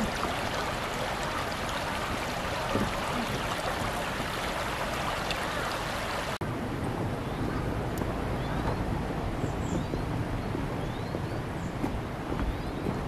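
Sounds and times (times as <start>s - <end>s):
stream rushing water: 0.0s - 6.4s
wind rumble on microphone: 0.0s - 13.0s.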